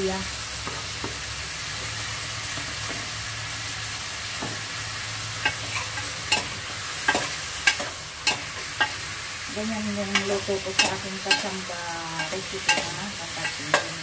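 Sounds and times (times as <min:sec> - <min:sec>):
chicken sizzling in a pot: 0:00.0 - 0:14.0.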